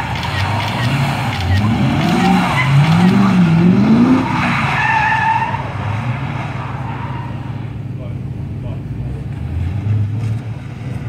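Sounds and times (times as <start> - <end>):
tyre squeal: 0.0 - 7.6
car engine revving hard: 0.0 - 11.0.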